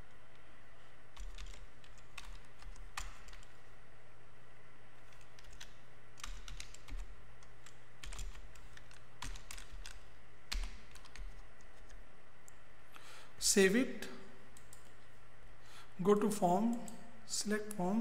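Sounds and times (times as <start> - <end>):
computer keyboard typing: 1.1 - 3.6, 5.0 - 12.0.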